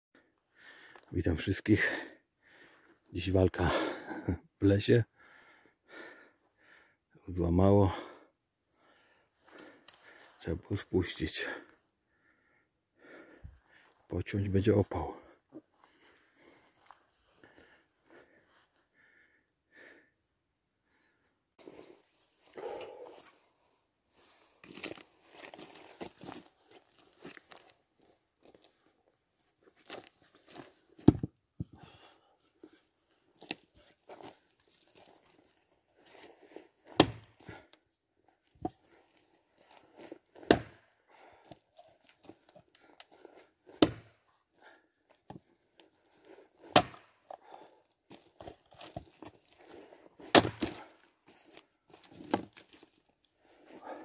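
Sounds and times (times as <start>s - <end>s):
axe chopping wood: 31.0s - 31.3s, 36.9s - 37.4s, 40.4s - 40.8s, 43.7s - 44.2s, 46.6s - 47.2s, 50.2s - 50.9s.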